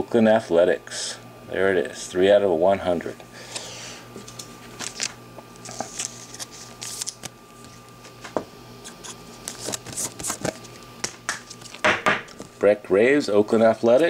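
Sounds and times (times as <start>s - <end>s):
card stock rustling: 4.8s - 7.9s, 9.4s - 12.6s.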